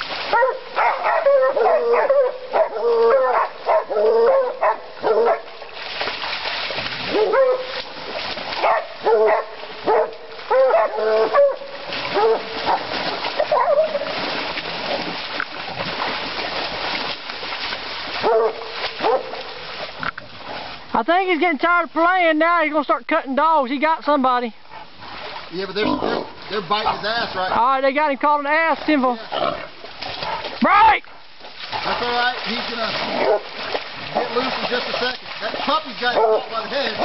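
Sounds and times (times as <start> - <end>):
splashing in water: 0.0 - 21.6, 24.5 - 37.0
dogs barking and baying: 0.3 - 5.6, 7.0 - 8.0, 8.6 - 14.2, 18.2 - 19.7, 26.0 - 27.6, 33.1 - 34.8, 36.0 - 37.0.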